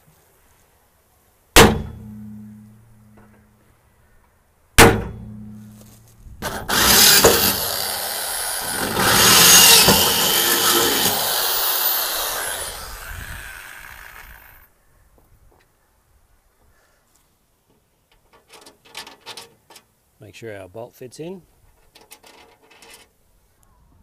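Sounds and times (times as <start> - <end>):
hammer striking metal punch: 1.6 - 2.4, 4.8 - 5.6
electric drill boring into metal: 6.4 - 14.6.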